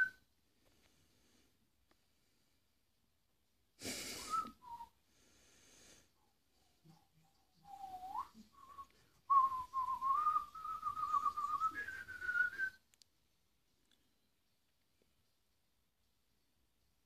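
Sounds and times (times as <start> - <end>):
man whistling a tune: 0.0 - 0.2, 4.2 - 5.0, 7.7 - 12.8.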